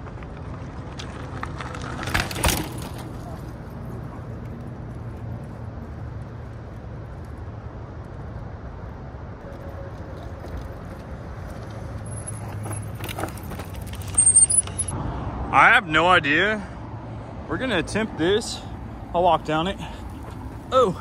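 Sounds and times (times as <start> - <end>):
bike rolling over rough dirt: 0.0 - 7.5, 9.4 - 14.9.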